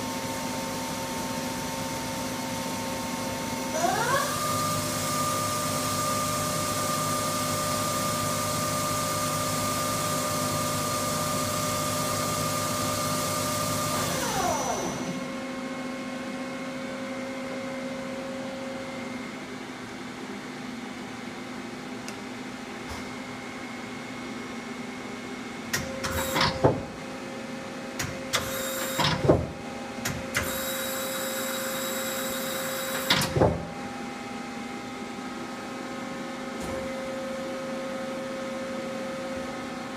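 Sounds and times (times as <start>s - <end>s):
mechanical clunks and whirs: 25.7s - 27.0s, 28.0s - 30.8s, 32.8s - 33.8s.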